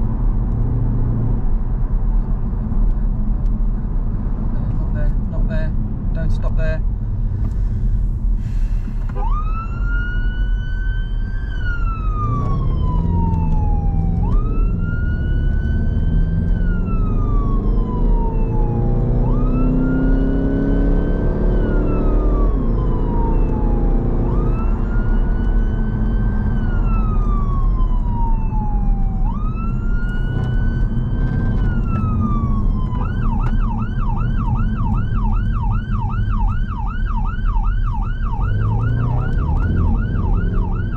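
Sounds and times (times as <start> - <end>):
car engine and road noise: 0.0 - 40.9
electronic siren wailing: 9.2 - 40.9.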